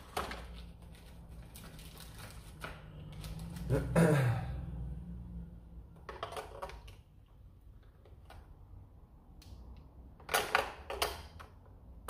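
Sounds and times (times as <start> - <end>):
clicks and rattles: 6.0 - 7.1.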